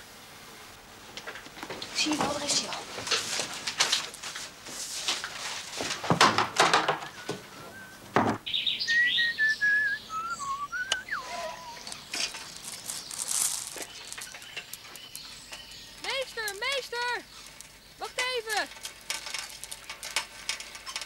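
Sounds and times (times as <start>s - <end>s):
paper rustling: 2.0s - 7.4s, 11.9s - 15.0s
bicycle clicks and rattles: 3.0s - 7.1s, 11.8s - 21.0s
bird singing whistled notes: 7.0s - 13.2s
bird chirps: 7.0s - 18.1s.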